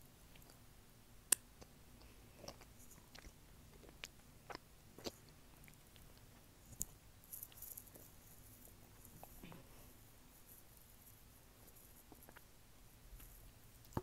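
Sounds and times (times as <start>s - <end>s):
chewing chocolate: 1.3s - 9.4s.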